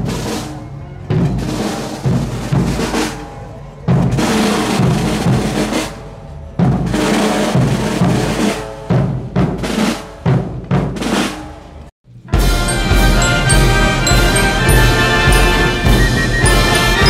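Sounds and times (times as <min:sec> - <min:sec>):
band holding notes: 0:12.3 - 0:17.0
snare drum rolls: 0:12.4 - 0:17.0.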